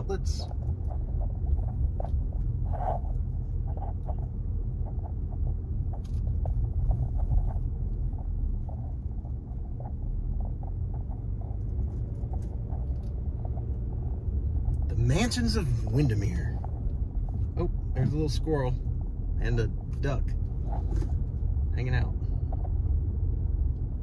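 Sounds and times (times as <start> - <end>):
car road rumble: 0.0 - 24.0.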